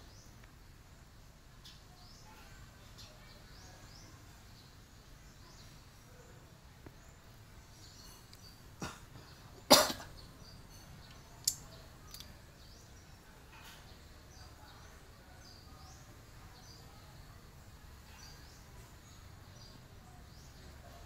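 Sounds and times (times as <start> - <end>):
cough-like burst: 8.8 - 9.1, 9.7 - 10.1.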